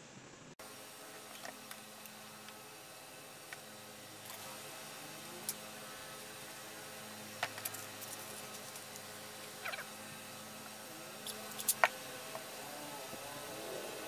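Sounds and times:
faint steady hum: 0.0 - 14.0.

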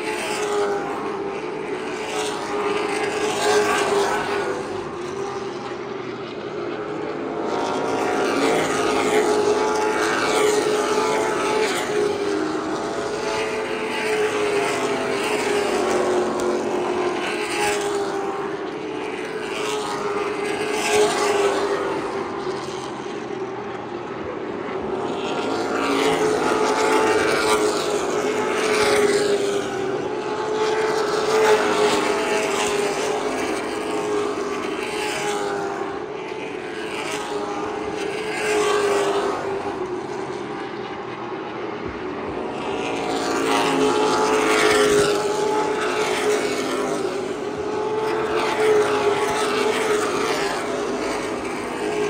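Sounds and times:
engine drone: 0.0 - 52.0
race cars passing: 0.0 - 52.0.

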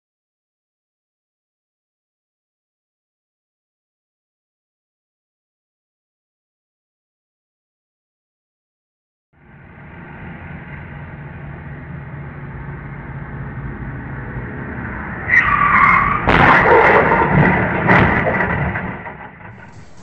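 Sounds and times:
car crash: 15.1 - 20.0
tyre squeal: 15.3 - 17.2, 19.6 - 20.0
pickup truck engine running: 16.7 - 20.0
crunch of impact: 19.4 - 20.0.

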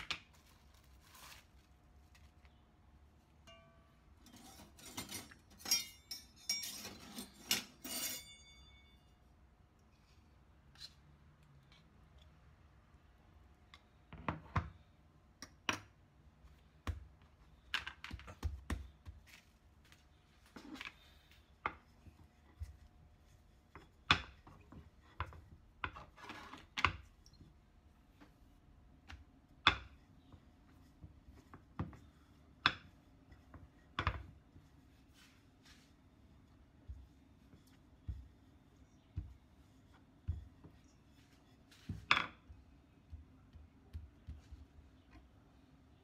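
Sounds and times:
dough ball handled on a board: 15.4 - 45.4.

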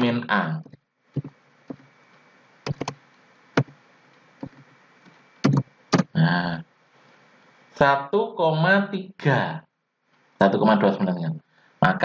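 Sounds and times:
faint background hum: 0.0 - 12.0
keyboard key clicks: 2.7 - 3.0.

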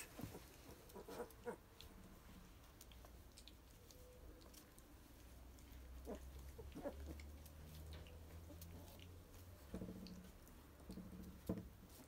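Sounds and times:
puppy paws ticking on floor: 0.0 - 12.0
puppy grunts: 6.0 - 7.4.

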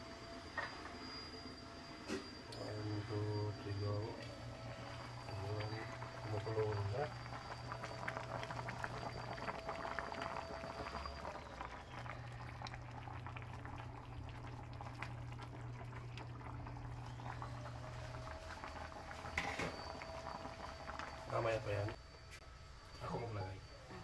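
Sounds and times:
steady low hum: 0.0 - 24.0
curry bubbling and popping: 4.7 - 22.0.

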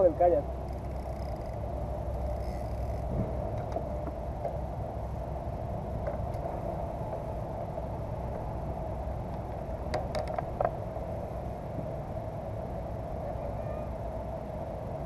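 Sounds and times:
low outdoor rumble: 0.0 - 15.0
fishing gear clicking and knocking: 0.6 - 4.6, 9.9 - 10.7.

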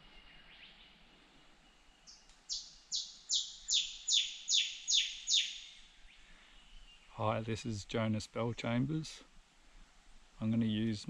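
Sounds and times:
bird singing sharp notes: 2.0 - 5.9.

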